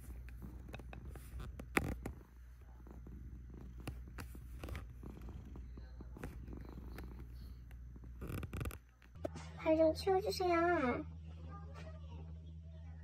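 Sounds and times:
cat purring: 0.0 - 9.2.

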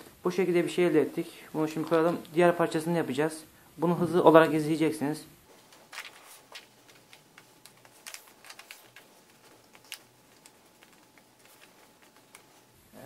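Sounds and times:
paper crinkling: 5.4 - 13.0.

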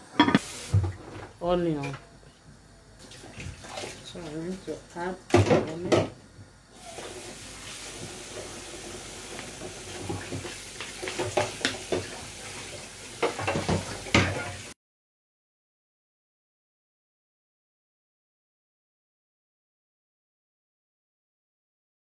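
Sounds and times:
cooking pot hissing: 0.0 - 1.6, 6.6 - 14.8.

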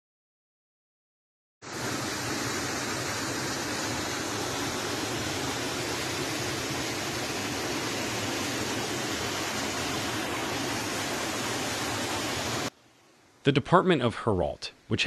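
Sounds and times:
flood water rushing: 1.6 - 12.7.

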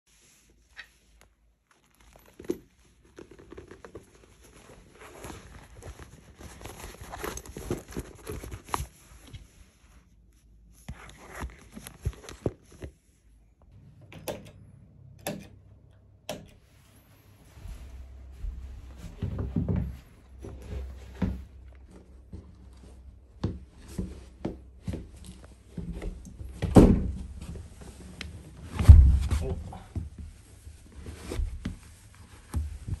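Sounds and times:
leather bag rustling: 1.6 - 9.4
shoes thumping and shuffling: 2.2 - 9.5, 10.8 - 13.0, 17.5 - 33.0.

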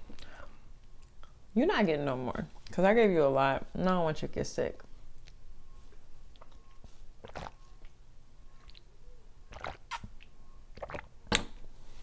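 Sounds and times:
person swallowing water: 7.2 - 7.9, 9.5 - 11.1.

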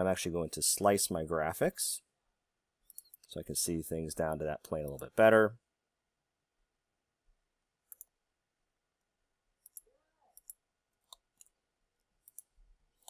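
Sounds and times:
computer mouse clicks: 2.8 - 3.3, 7.9 - 8.2, 9.6 - 11.6, 12.2 - 13.0.

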